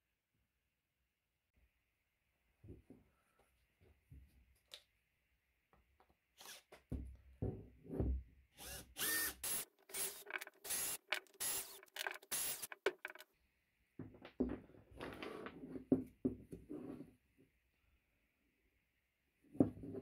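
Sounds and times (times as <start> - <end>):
cordless drill driving screws: 6.4 - 6.7, 8.6 - 13.2
wooden clamp pieces clattering: 10.2 - 13.2.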